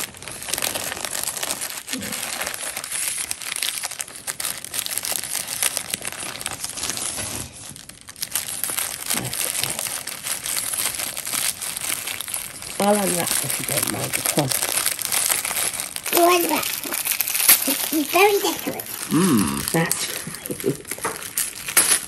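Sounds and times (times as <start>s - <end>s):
wrapping paper rustling: 0.0s - 22.0s.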